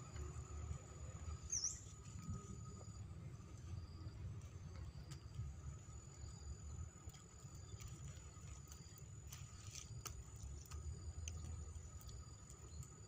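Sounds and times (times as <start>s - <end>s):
high-pitched insect whine: 0.0s - 13.0s
wind rumble on microphone: 0.0s - 13.0s
light ticks and clicks: 7.0s - 13.0s.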